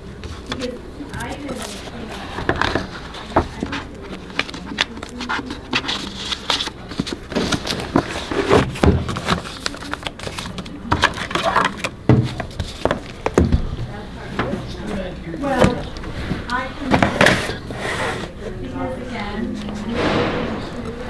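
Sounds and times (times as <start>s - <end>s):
paper pages rustling: 0.3s - 13.3s.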